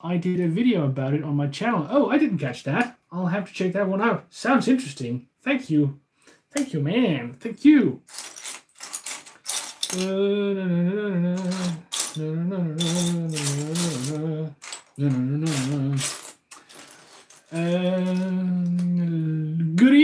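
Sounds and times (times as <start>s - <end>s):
plastic bricks clattering: 8.1s - 10.1s, 11.4s - 12.2s, 12.8s - 18.8s
person humming a tune: 9.9s - 16.2s, 17.5s - 20.0s.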